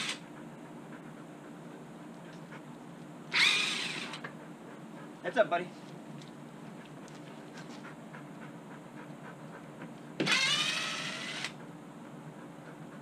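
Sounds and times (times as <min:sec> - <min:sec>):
drill motor whine: 0:03.3 - 0:04.2, 0:10.2 - 0:11.6.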